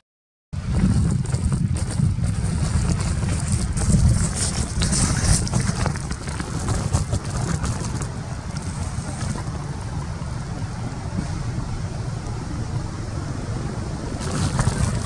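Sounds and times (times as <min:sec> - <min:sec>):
wind buffeting microphone: 0:00.6 - 0:15.0
crackling hiss and clicks: 0:00.8 - 0:15.0.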